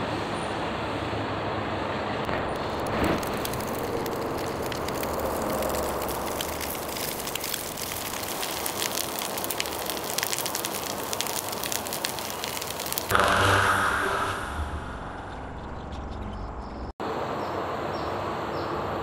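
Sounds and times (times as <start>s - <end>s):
charcoal crackling and popping: 2.3s - 13.1s.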